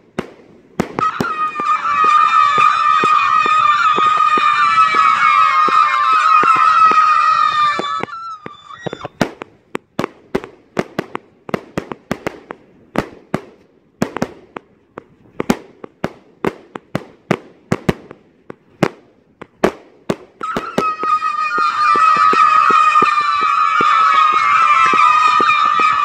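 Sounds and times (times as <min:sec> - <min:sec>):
fireworks bangs and cracks: 0:00.0 - 0:26.0
loud high whistle: 0:01.0 - 0:09.2, 0:20.4 - 0:26.0.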